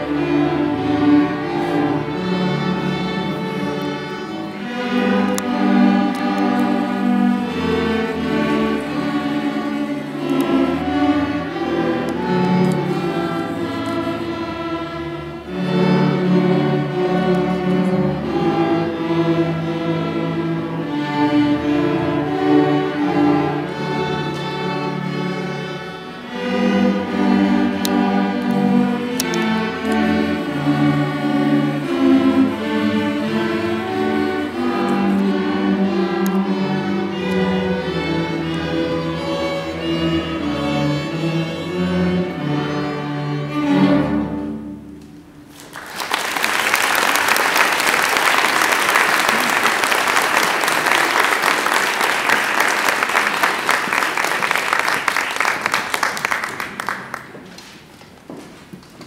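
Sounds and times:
string orchestra playing: 0:00.0 - 0:57.9
audience applauding: 0:45.5 - 0:57.8.

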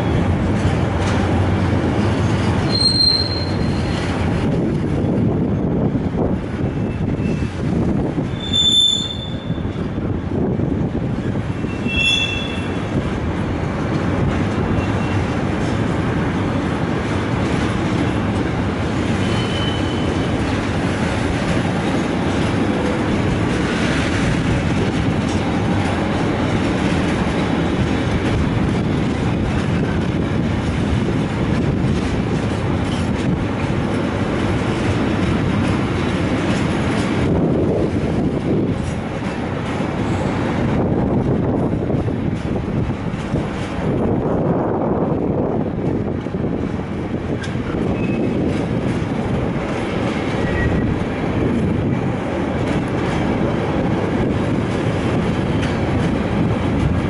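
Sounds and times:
train wheels rumbling on rails: 0:00.0 - 0:57.0
high-pitched wheel squeals: 0:02.7 - 0:04.0, 0:08.3 - 0:09.6, 0:11.7 - 0:12.8.

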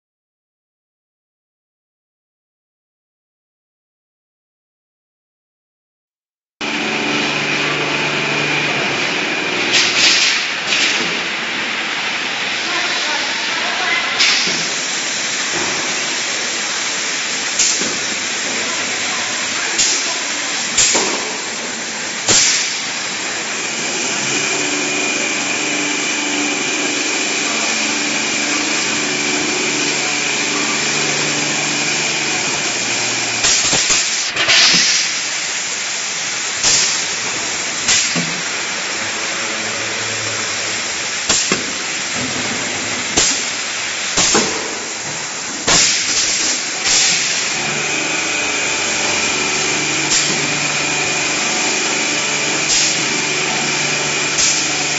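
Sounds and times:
filling machine humming: 0:06.6 - 0:54.9
short hissing bursts: 0:12.4 - 0:39.4, 0:43.1 - 0:47.8.

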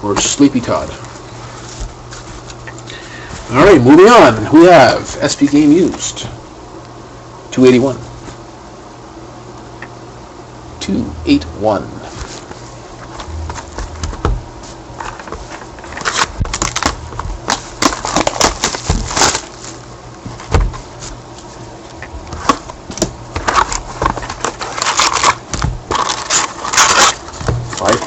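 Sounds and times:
packaging and cardboard rustling: 0:01.4 - 0:02.7, 0:12.1 - 0:21.5, 0:23.4 - 0:28.0
faint low hum: 0:09.6 - 0:19.5.

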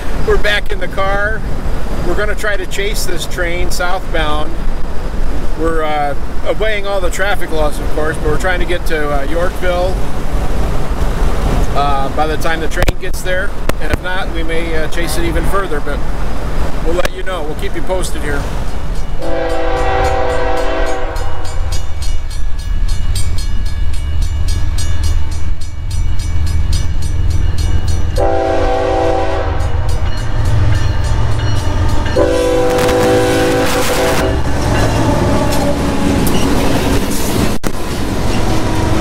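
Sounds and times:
locomotive air horn blasts: 0:19.2 - 0:21.7, 0:28.2 - 0:30.0, 0:32.0 - 0:34.5.

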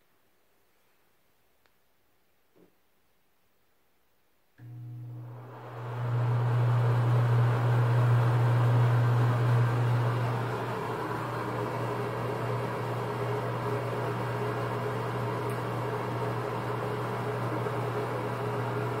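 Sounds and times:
exhaust fan humming: 0:04.6 - 0:19.0.

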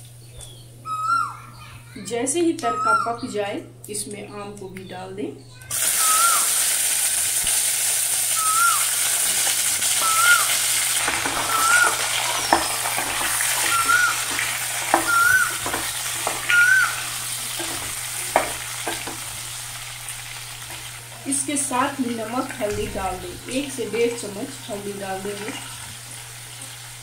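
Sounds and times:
mango pieces sizzling in hot oil: 0:05.7 - 0:27.0
spatula scraping pan: 0:09.4 - 0:21.0.

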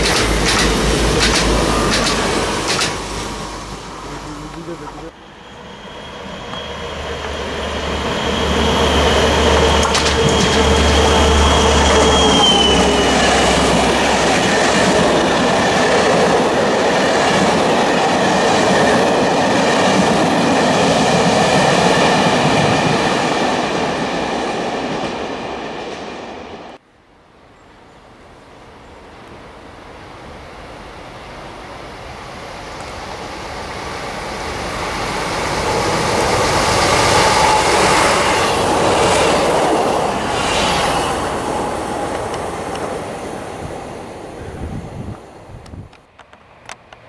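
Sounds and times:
train wheels rushing and rattling: 0:00.0 - 0:04.1, 0:04.8 - 0:26.8, 0:32.7 - 0:44.3
locomotive whine and hum: 0:00.0 - 0:18.6, 0:29.9 - 0:47.0.

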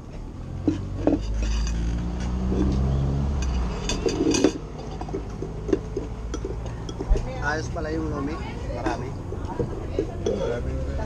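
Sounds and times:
low engine hum: 0:00.0 - 0:11.0
spoon clinking ceramic bowls: 0:00.7 - 0:07.3, 0:10.0 - 0:10.6.

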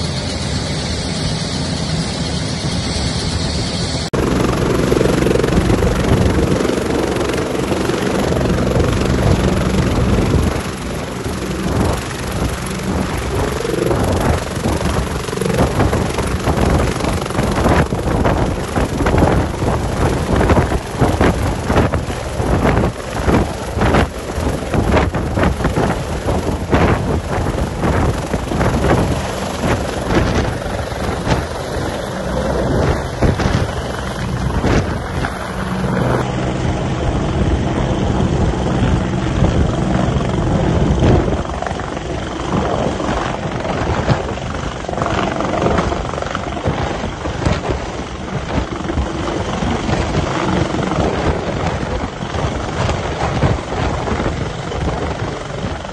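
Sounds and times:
helicopter rotor and engines: 0:00.0 - 0:55.9
rotor wash buffeting microphone: 0:00.0 - 0:55.9.

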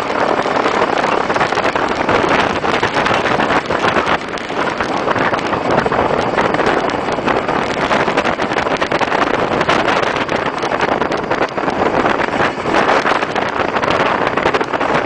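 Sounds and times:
road noise: 0:00.0 - 0:15.0
wind buffeting microphone: 0:00.0 - 0:15.0.

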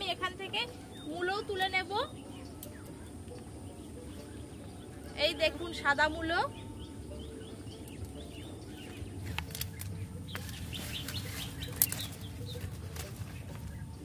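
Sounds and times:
plant leaves rustling and crackling: 0:07.9 - 0:14.0.

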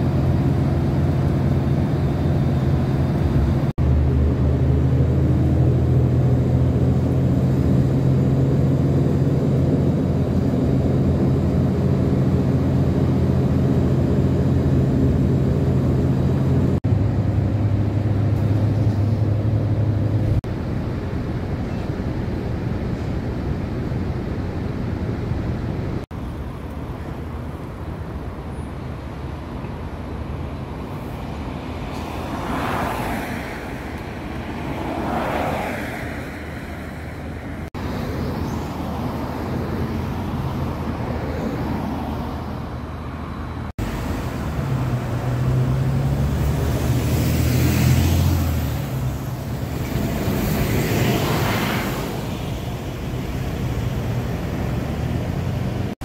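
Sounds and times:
low engine drone: 0:00.0 - 0:28.5
vehicles passing: 0:00.0 - 0:56.0.

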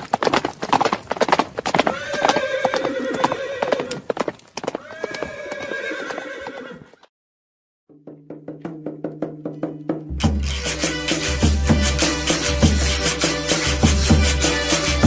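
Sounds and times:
horse hooves clip-clopping: 0:00.0 - 0:07.1
drum-led music: 0:07.9 - 0:15.0.

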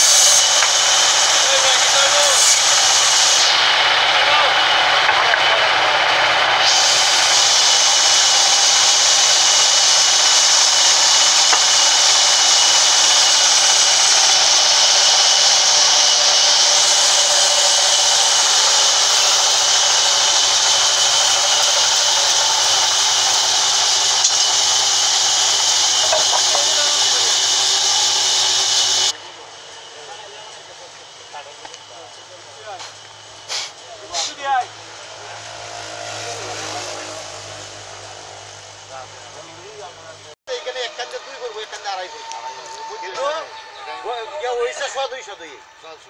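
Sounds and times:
band saw mill hissing: 0:00.0 - 0:46.0
thin high whistle: 0:40.5 - 0:46.0.

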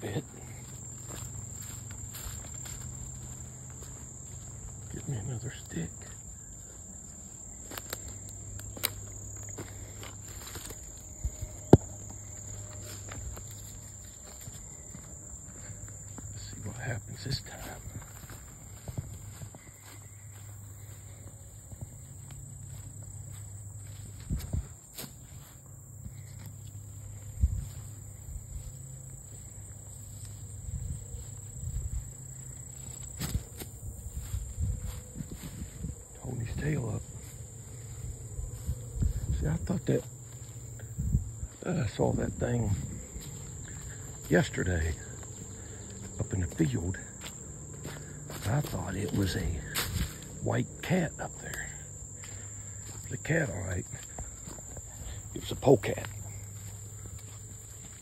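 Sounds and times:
crickets droning: 0:00.0 - 0:58.0
footsteps through grass and leaves: 0:00.0 - 0:58.0
insects buzzing: 0:00.0 - 0:58.0
dry sticks knocking and cracking: 0:07.8 - 0:09.1.

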